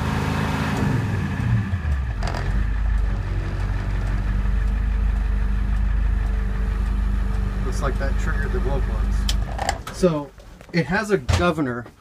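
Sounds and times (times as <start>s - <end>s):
diesel engine revving down to idle: 0.0s - 9.6s.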